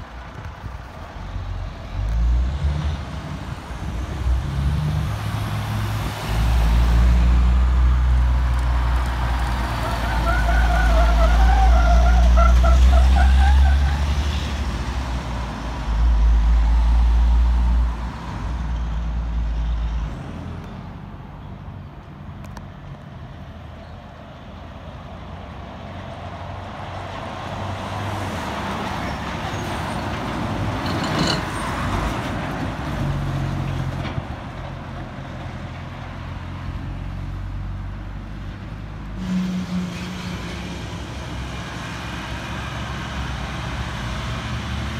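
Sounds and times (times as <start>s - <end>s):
passing cars and traffic: 0.0s - 44.9s
truck diesel engine: 0.0s - 44.9s.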